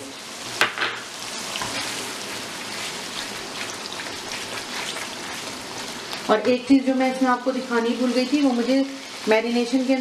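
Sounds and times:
paste sizzling in hot oil: 0.0s - 10.0s
spatula stirring in pan: 1.2s - 6.3s.

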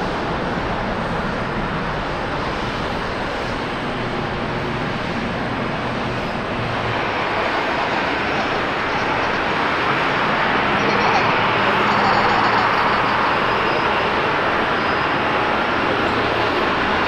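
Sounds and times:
airliner engine noise on runway: 0.0s - 17.0s
jet airliner climbing away: 0.0s - 17.0s.

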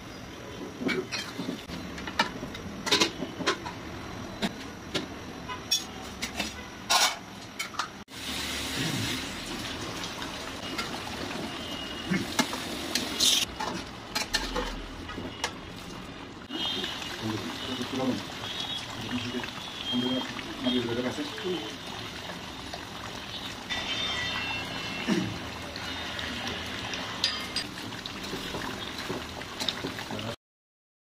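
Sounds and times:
gravy sizzling: 8.1s - 30.4s.

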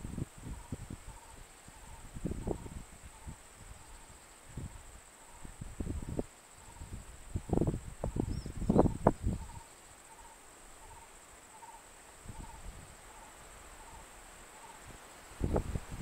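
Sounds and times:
insects droning: 0.0s - 16.0s
faint short insect chirp: 0.1s - 15.7s.

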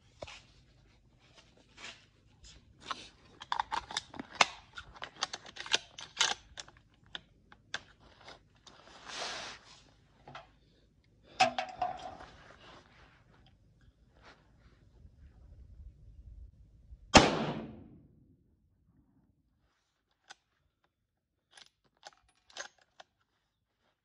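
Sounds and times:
rifle handling clicks and rattles: 2.8s - 8.8s, 11.4s - 12.4s, 20.1s - 23.4s.

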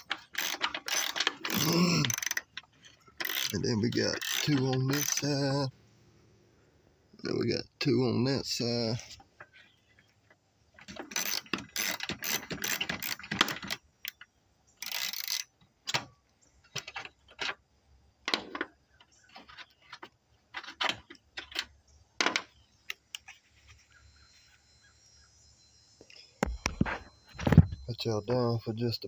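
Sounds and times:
ratchet wrench clicking: 0.0s - 5.3s, 11.0s - 14.2s, 14.8s - 15.5s
tools and loose bolts knocking: 0.0s - 5.5s, 10.8s - 17.6s.

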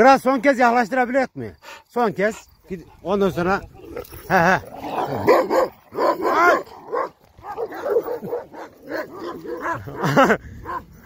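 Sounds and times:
dogs barking and yelping: 2.6s - 11.0s.

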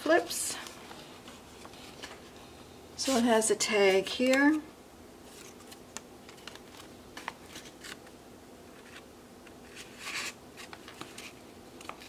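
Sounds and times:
paper sliding rustle: 8.7s - 12.0s.

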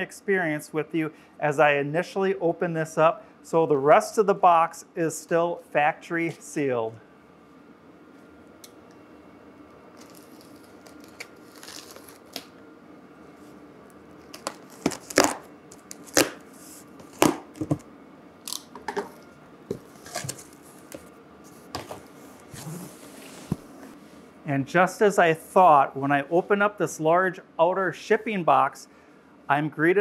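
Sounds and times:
tape tearing: 9.9s - 12.6s, 14.2s - 16.4s, 18.4s - 18.8s
utility knife cutting packing tape: 10.0s - 12.5s, 14.2s - 16.4s
cardboard scraping: 19.7s - 23.7s.

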